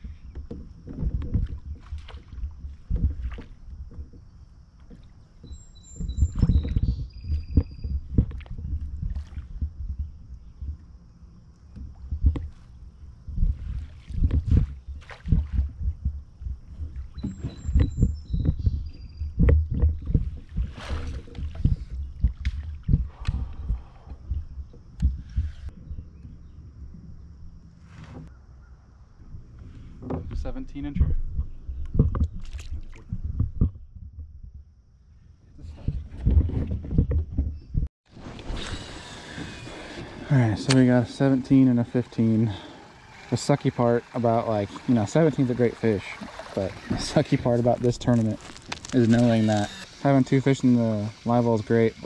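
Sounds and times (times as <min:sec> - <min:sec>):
water slapping against kayak hull: 0:00.0 - 0:10.9, 0:11.7 - 0:25.7, 0:31.3 - 0:33.8, 0:38.1 - 0:49.2.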